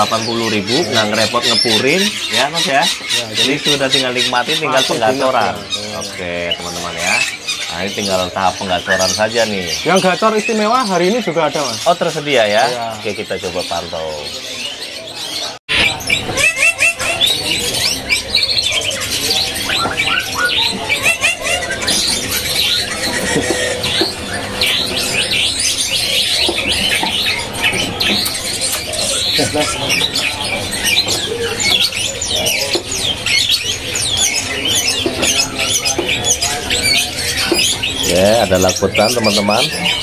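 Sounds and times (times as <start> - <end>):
bird singing chirps and whistles: 15.7 - 40.0.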